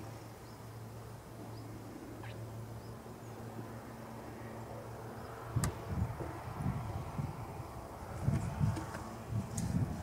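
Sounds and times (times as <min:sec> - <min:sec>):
faint bird chirps: 0:01.5 - 0:03.4.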